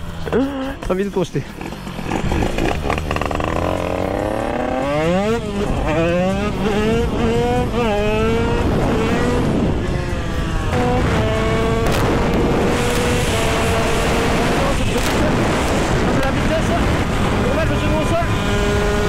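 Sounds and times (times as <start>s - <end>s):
two-stroke motorcycle engine high revs: 1.5s - 19.0s
wind noise: 5.4s - 19.0s.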